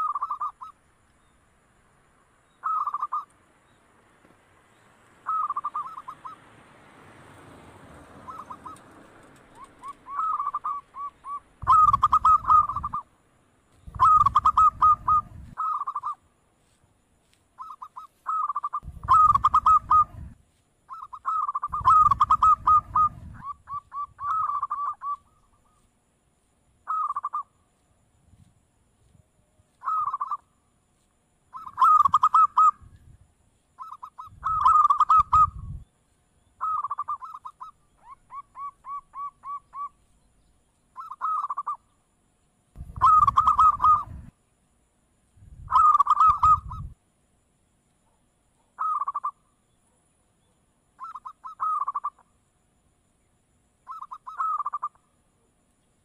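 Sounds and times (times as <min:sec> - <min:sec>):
dove cooing: 0:00.0 - 0:00.7, 0:02.6 - 0:03.3, 0:05.2 - 0:06.4, 0:08.2 - 0:08.9, 0:09.5 - 0:13.1, 0:13.9 - 0:16.2, 0:17.6 - 0:25.8, 0:26.9 - 0:27.5, 0:29.8 - 0:30.5, 0:31.5 - 0:32.9, 0:33.8 - 0:35.8, 0:36.6 - 0:40.0, 0:41.0 - 0:41.8, 0:42.8 - 0:44.3, 0:45.7 - 0:46.9, 0:48.8 - 0:49.4, 0:51.0 - 0:52.2, 0:53.9 - 0:55.0.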